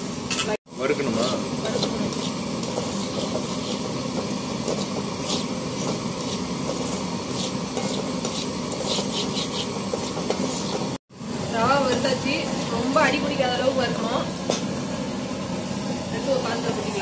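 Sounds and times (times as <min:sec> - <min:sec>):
stove burner hissing: 0:00.0 - 0:17.0
metal ladle scraping pan: 0:01.6 - 0:11.0.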